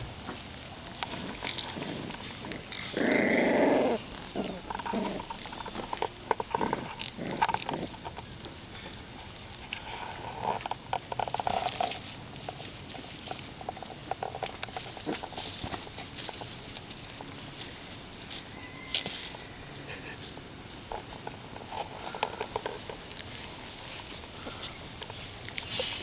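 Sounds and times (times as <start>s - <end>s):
puppies growling: 0.2s - 9.0s, 13.8s - 16.3s.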